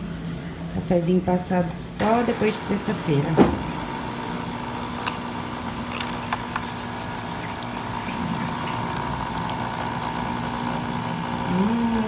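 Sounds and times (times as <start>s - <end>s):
coffee machine pump humming: 2.0s - 12.0s
coffee pouring into cup: 3.7s - 11.4s.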